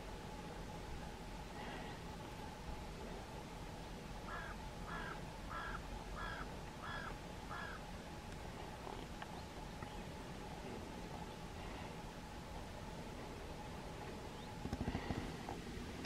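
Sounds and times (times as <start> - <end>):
faint background hiss: 0.0 - 16.0
crow cawing: 4.3 - 7.8.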